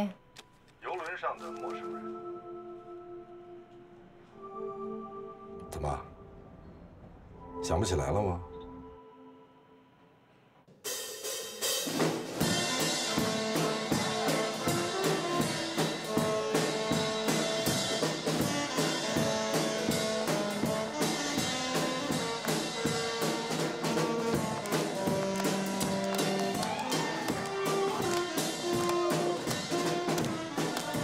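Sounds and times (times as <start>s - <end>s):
drum kit steady beat: 10.8s - 31.0s
saxophone melody: 12.4s - 31.0s.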